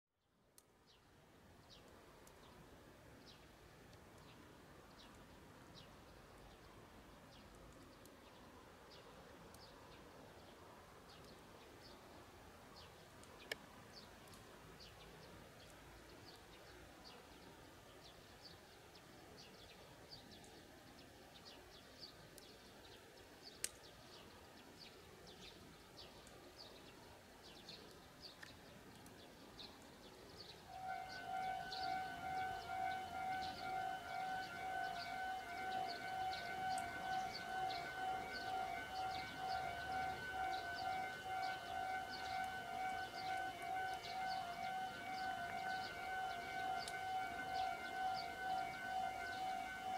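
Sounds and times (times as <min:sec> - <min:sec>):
alarm ringing: 0:30.7 - 0:49.9.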